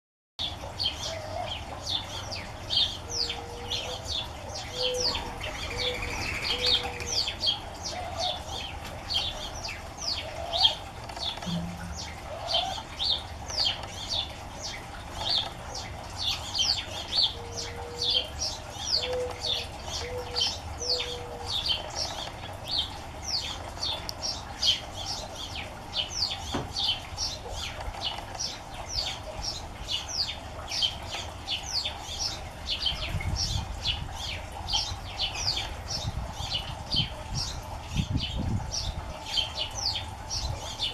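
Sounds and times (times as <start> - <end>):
small birds chirping: 0.4 - 40.9
dove cooing: 3.0 - 9.0, 17.2 - 21.9.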